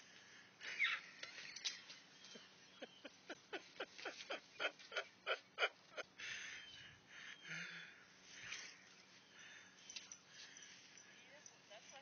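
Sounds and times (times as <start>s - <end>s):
man laughing hard: 2.8s - 6.1s
wheezing breath: 6.2s - 11.3s.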